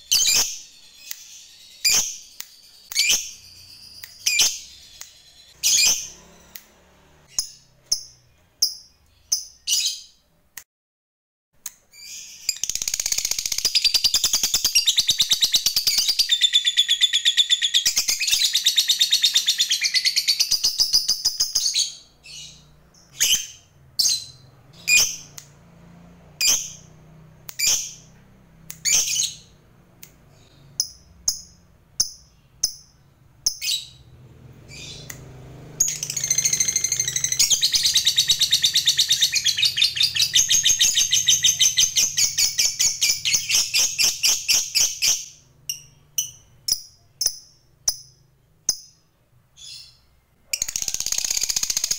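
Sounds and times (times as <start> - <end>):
lovebird chirping and trilling: 0.0 - 6.6, 7.2 - 10.2, 11.9 - 25.4, 26.4 - 26.9, 27.5 - 29.6, 30.3 - 34.1, 34.7 - 35.2, 35.8 - 51.9.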